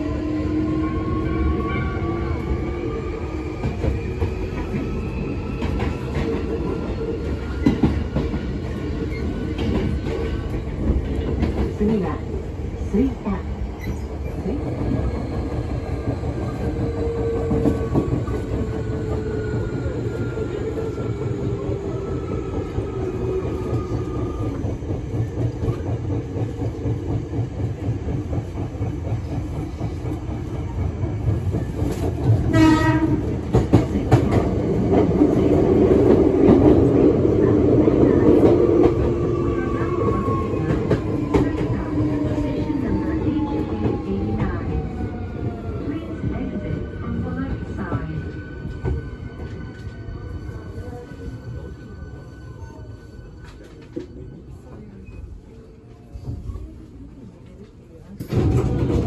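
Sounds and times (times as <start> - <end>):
wheels rumbling on rail: 0.0 - 59.0
train horn blast: 32.5 - 33.3.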